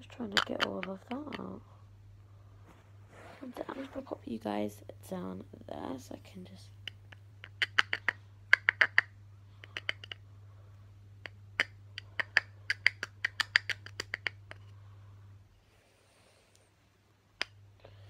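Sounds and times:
plastic jar tapping and shaking: 0.2s - 1.6s, 12.1s - 14.7s.

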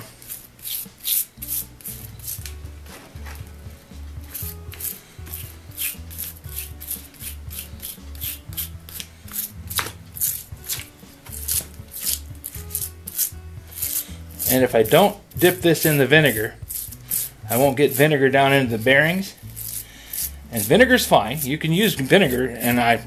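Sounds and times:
stiff brush scrubbing metal: 4.2s - 23.0s.

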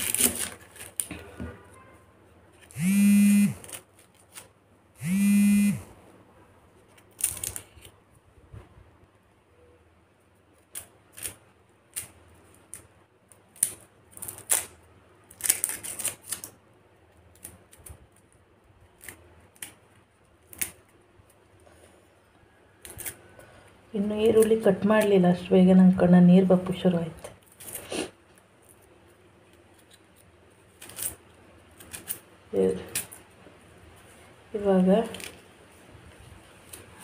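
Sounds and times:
onion skin crackling: 0.0s - 1.1s, 6.9s - 8.0s, 10.5s - 21.6s, 22.6s - 25.2s, 27.2s - 35.8s
buzzing tones: 2.7s - 3.6s, 5.0s - 5.9s.

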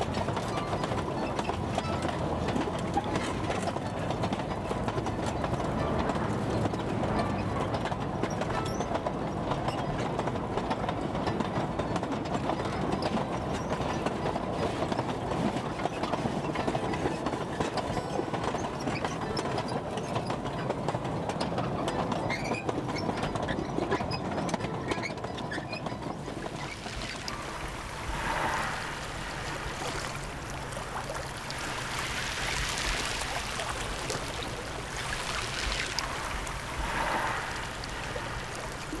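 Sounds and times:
railway wagons rattling on track: 0.0s - 39.0s
steady rumble: 26.2s - 39.0s.

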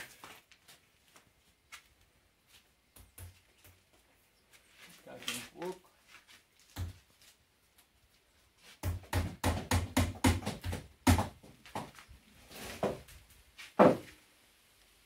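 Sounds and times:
hammer hitting nail into wood: 8.8s - 11.3s.

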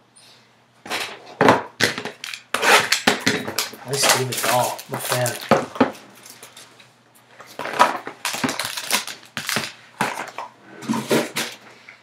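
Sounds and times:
foil pack crinkling: 2.1s - 6.8s, 7.5s - 10.4s.

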